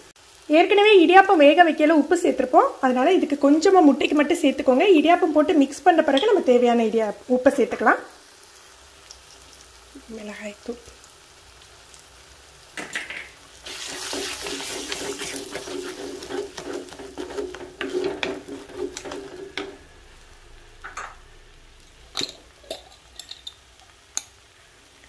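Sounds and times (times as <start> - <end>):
wooden spatula scraping pot: 13.7 - 19.9
hissing rush with low hum: 14.8 - 23.3.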